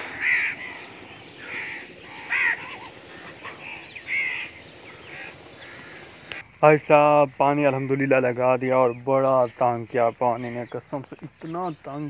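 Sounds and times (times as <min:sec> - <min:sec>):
crows cawing: 0:00.0 - 0:06.4.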